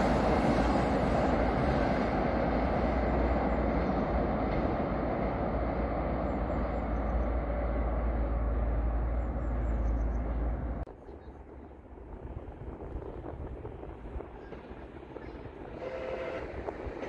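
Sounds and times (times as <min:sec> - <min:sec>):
metro train rumble: 0:00.0 - 0:17.0
outdoor background noise: 0:00.0 - 0:17.0
wind on microphone: 0:11.4 - 0:17.0.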